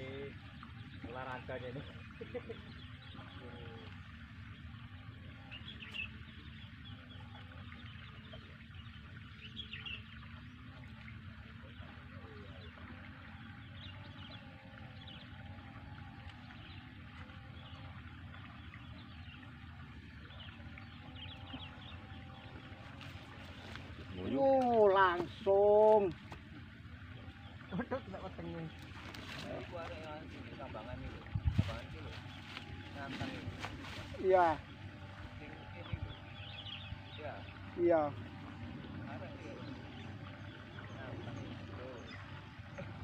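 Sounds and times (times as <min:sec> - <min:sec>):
low background rumble and hiss: 0:00.0 - 0:43.0.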